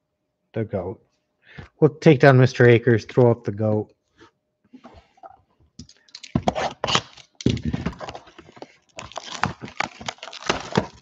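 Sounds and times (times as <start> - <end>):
plastic shrink-wrap tearing: 6.1 - 11.0.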